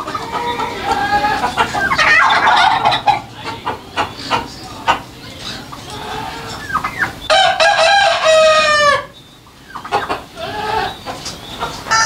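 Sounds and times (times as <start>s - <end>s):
chicken clucking: 0.0s - 12.0s
rooster crowing: 7.2s - 9.2s.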